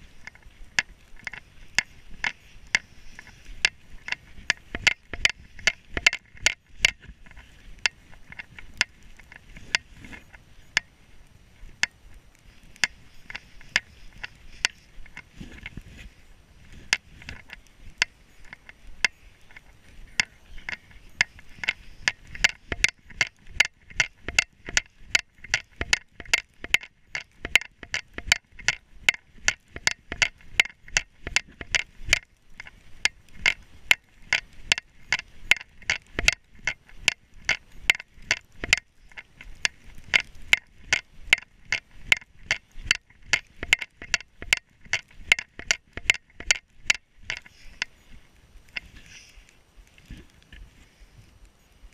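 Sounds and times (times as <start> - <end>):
footsteps in snow: 7.0 - 22.0.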